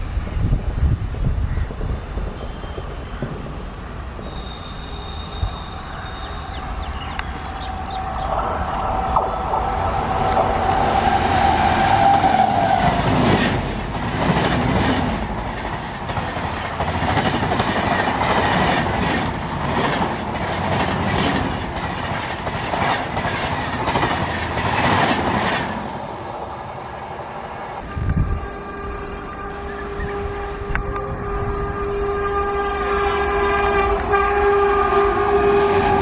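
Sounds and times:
steady high locomotive tone: 0:00.0 - 0:36.0
train wheels clattering: 0:01.8 - 0:25.8.

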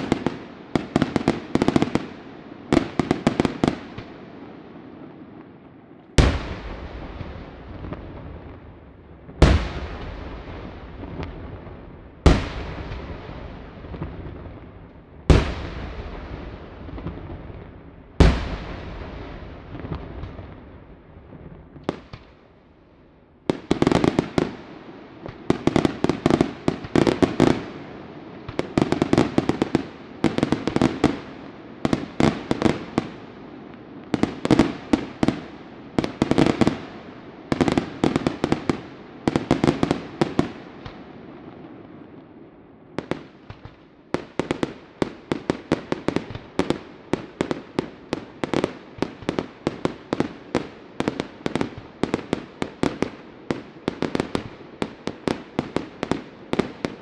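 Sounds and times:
fireworks bangs: 0:00.0 - 0:22.5, 0:23.5 - 0:33.4.

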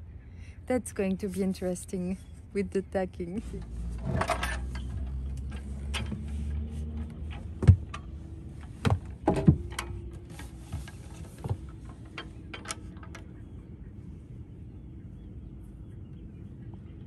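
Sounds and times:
low hum: 0:00.0 - 0:17.0
knocks and clicks: 0:03.6 - 0:13.3.

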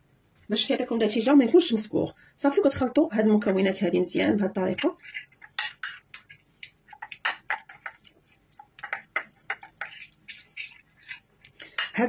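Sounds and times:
metal spoon scraping a ceramic plate: 0:04.8 - 0:08.1, 0:08.8 - 0:12.0.

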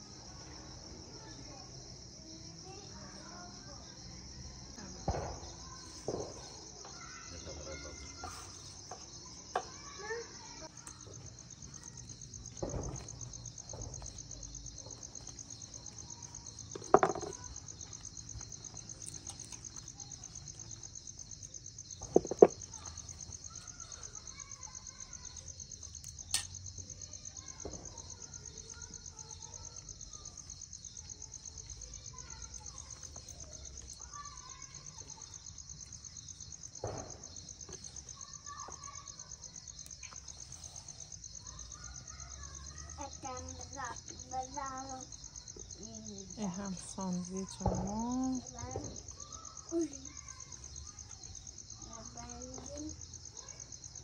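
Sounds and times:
insects chirring: 0:00.0 - 0:54.0
knife knocking on cutting board: 0:16.9 - 0:17.4.

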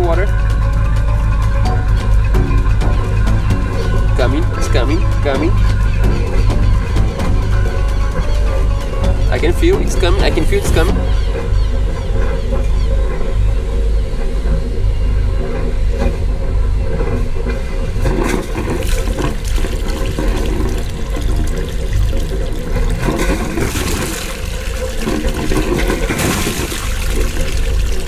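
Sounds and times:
diesel engine low rumble: 0:00.0 - 0:28.0
water splashing from exhaust: 0:17.4 - 0:28.0.

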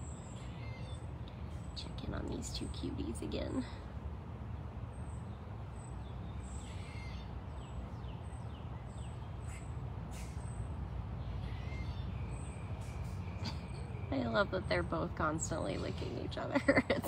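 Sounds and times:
faint bird calls: 0:00.0 - 0:01.9, 0:05.0 - 0:14.4.

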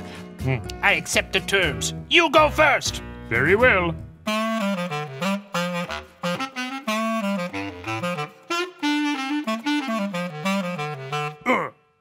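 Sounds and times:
single-reed woodwind melody: 0:04.3 - 0:11.5.

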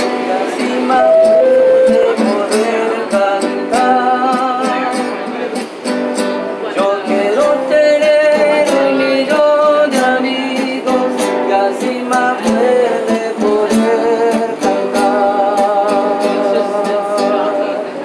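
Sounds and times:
strummed acoustic guitar: 0:00.0 - 0:18.0
person singing: 0:00.8 - 0:03.9.

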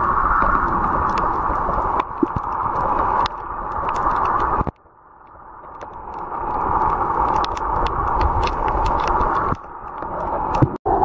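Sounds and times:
sharp underwater clicks: 0:00.1 - 0:10.8.

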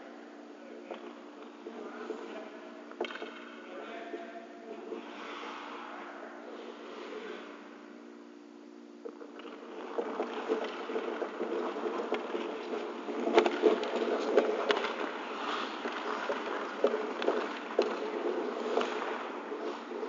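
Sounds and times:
hockey sticks and puck clacking: 0:00.8 - 0:05.1, 0:09.1 - 0:20.0
skate blades scraping on ice: 0:09.2 - 0:20.0.

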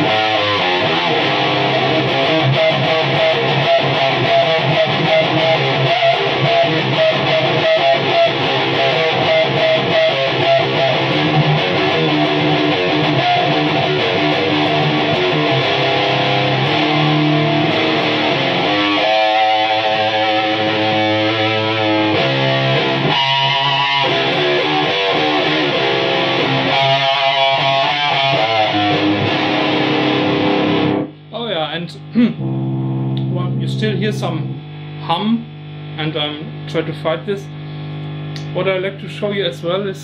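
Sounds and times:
distorted electric guitar riff: 0:00.0 - 0:40.0.

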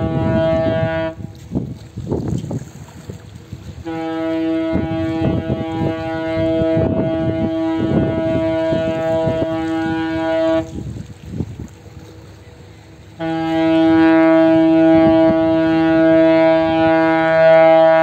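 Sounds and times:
ship's horn blast: 0:00.0 - 0:01.4, 0:03.5 - 0:10.9, 0:12.5 - 0:18.0
wind buffeting microphone: 0:00.0 - 0:18.0.

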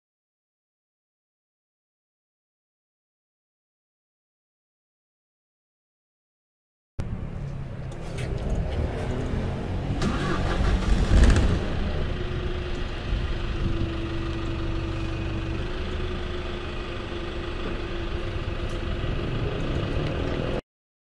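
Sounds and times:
steady engine hum: 0:07.0 - 0:20.6
bus diesel engine idling: 0:11.7 - 0:20.6.

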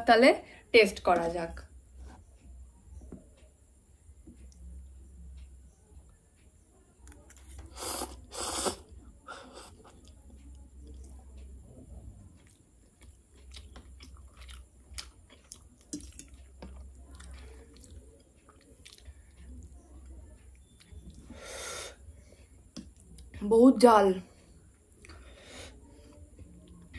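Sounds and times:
person slurping noodles: 0:07.7 - 0:08.9
chewing with mouth closed: 0:12.4 - 0:19.6.

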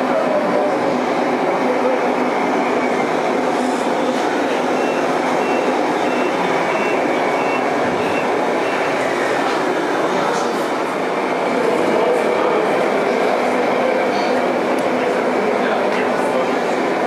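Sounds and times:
reversing beeper beeps: 0:04.7 - 0:09.0.

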